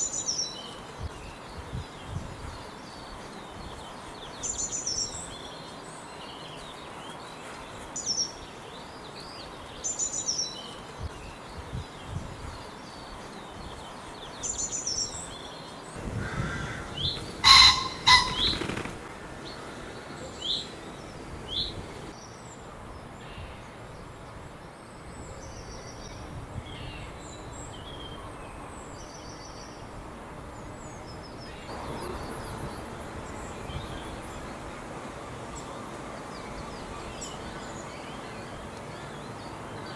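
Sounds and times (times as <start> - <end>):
songbirds chirping: 0.0 - 39.9
pheasant crowing: 16.0 - 18.9
whirring wingbeats: 16.0 - 19.9.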